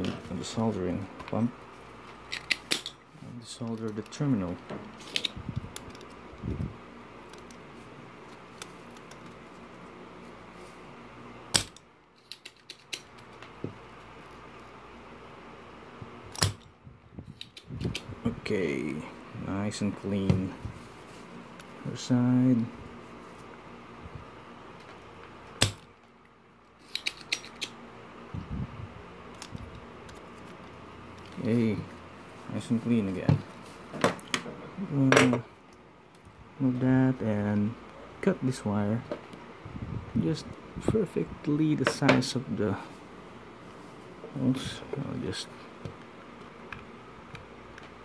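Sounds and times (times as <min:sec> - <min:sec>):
desoldering pump snapping: 0:02.1 - 0:03.0, 0:03.6 - 0:06.2, 0:11.5 - 0:13.6, 0:16.3 - 0:16.7, 0:17.3 - 0:18.1, 0:25.5 - 0:27.8
desoldering pump snap: 0:11.5 - 0:13.1, 0:16.3 - 0:16.7, 0:25.6 - 0:25.9.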